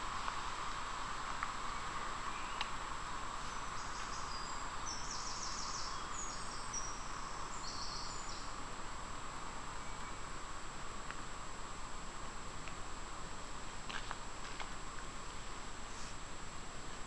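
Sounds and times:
outdoor hiss: 0.0 - 17.0
songbird trilling: 3.8 - 8.5.

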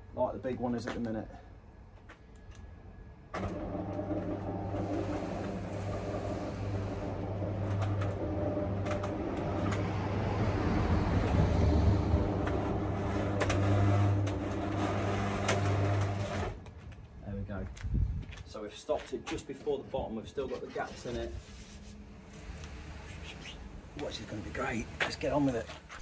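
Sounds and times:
roller shutter door motor humming: 3.2 - 16.7.

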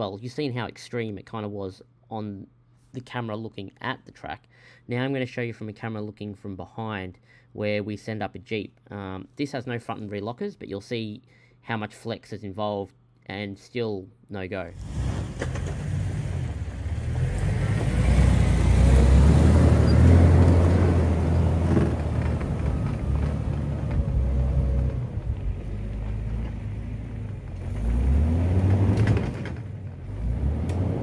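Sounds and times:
engine labouring: 14.8 - 31.0.

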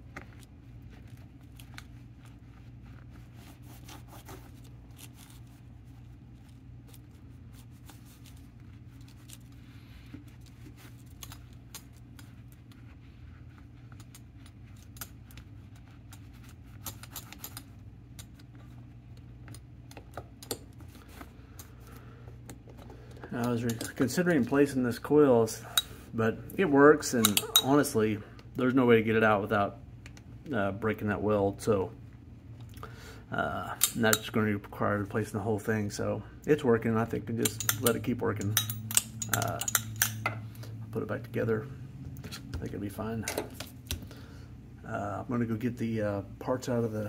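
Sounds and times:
steady low hum: 0.0 - 47.0
small metal clicks and taps: 37.4 - 40.4.

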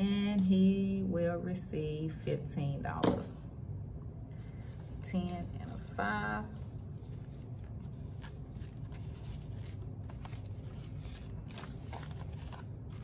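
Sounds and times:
banknotes rustling and crinkling: 4.4 - 13.0.

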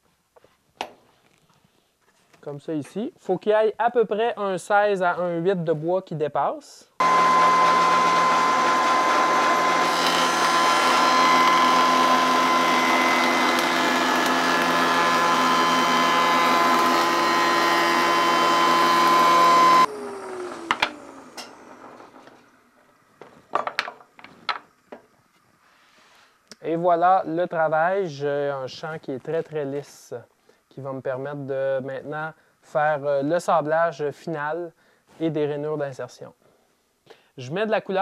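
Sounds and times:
spindle winding down hum: 7.0 - 22.2
wood shaper running with whine: 7.0 - 22.6.

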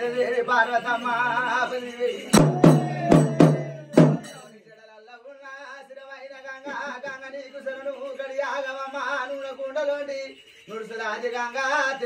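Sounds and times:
man singing a chant: 0.0 - 12.0
loud sharp drum beats: 2.3 - 4.4.

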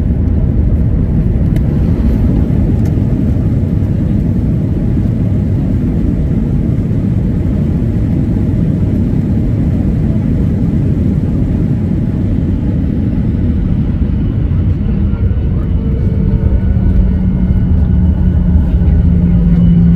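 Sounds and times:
airliner engines rumbling in cabin: 0.0 - 19.9.

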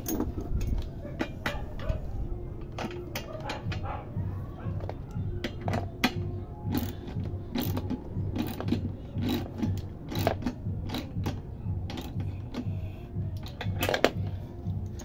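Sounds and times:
socket ratchet clicking: 5.4 - 12.7.

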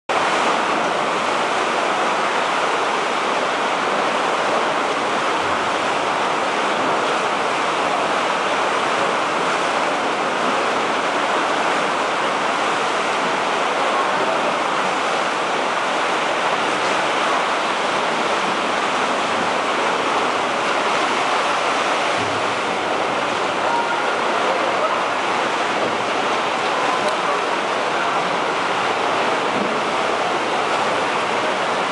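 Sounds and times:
sea surf splashing against rock: 0.1 - 31.9.

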